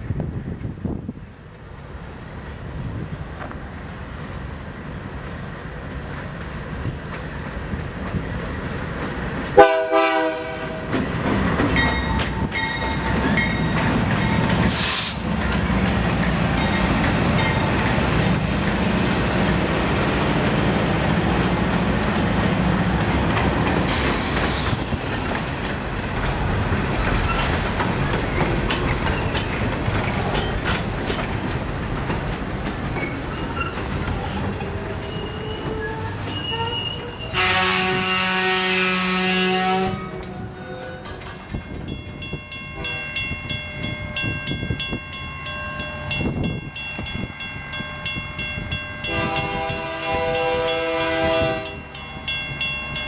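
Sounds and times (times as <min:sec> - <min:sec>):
diesel locomotive engines passing: 0:00.0 - 0:53.0
train horn blast: 0:09.6 - 0:11.0, 0:34.7 - 0:41.1, 0:49.0 - 0:51.8.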